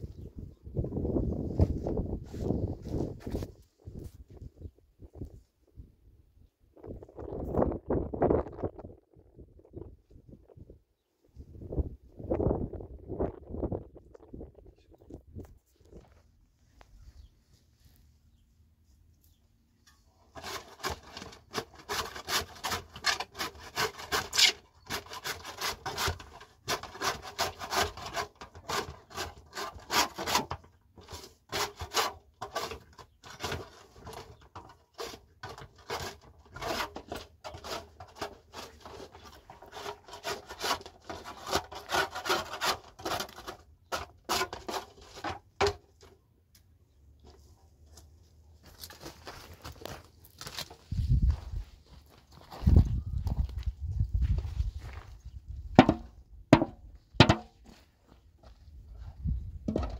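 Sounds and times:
wood rasping strokes: 0:20.3 - 0:45.4.

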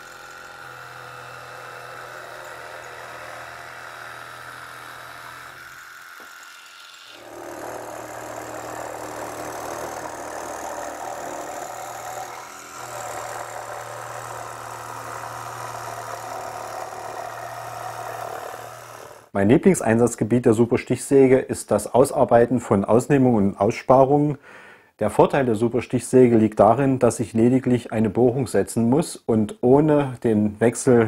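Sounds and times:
jigsaw sawing thin wood: 0:00.0 - 0:19.3.

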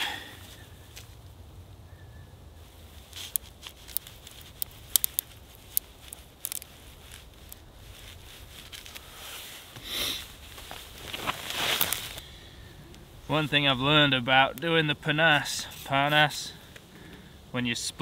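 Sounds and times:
brief rustle: 0:10.5 - 0:12.2.

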